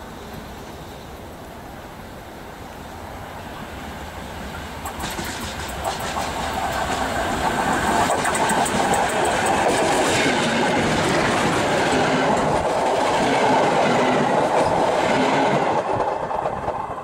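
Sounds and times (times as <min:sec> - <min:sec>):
steam locomotive approaching: 0:00.0 - 0:17.0
sharp rail clicks: 0:04.5 - 0:16.9.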